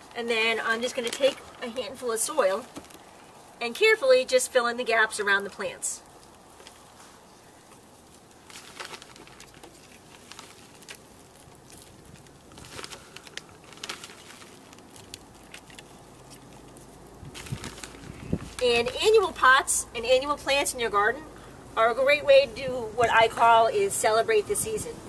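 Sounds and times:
hands crumbling potting soil: 0.0s - 3.5s, 4.2s - 19.7s.

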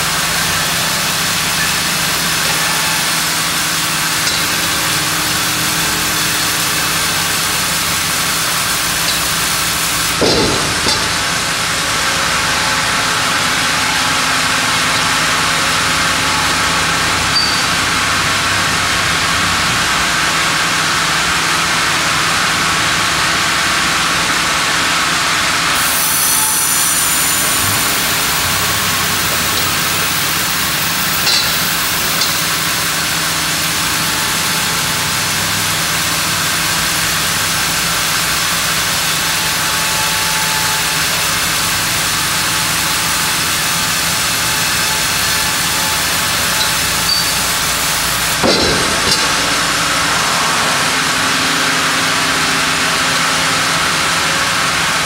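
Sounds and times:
band sawmill cutting log: 0.0s - 55.0s.

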